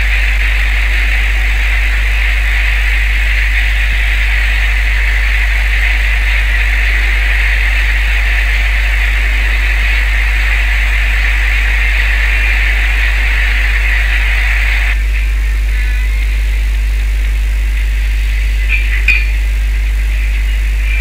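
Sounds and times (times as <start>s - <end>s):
boat engine droning: 0.0s - 21.0s.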